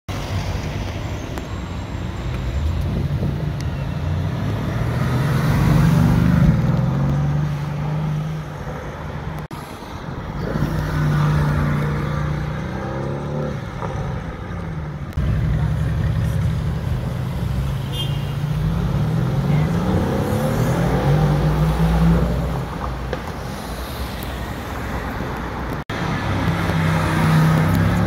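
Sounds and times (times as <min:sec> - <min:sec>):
car engine passing: 0:04.0 - 0:08.8.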